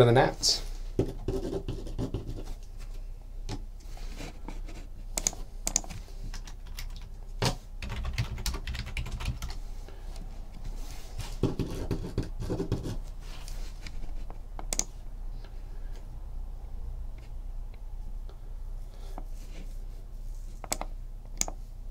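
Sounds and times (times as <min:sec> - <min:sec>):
typing on keyboard: 0:05.2 - 0:07.1, 0:07.8 - 0:09.6.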